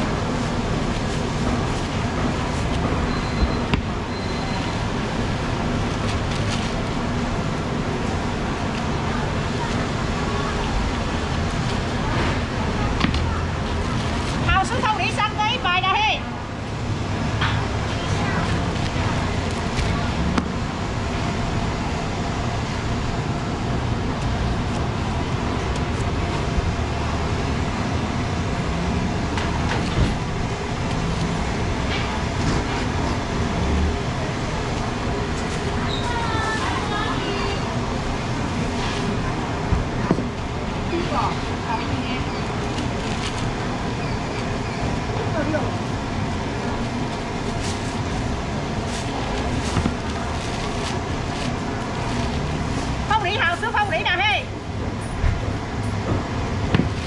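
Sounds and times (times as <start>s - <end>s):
traffic and market rumble: 0.0s - 57.0s.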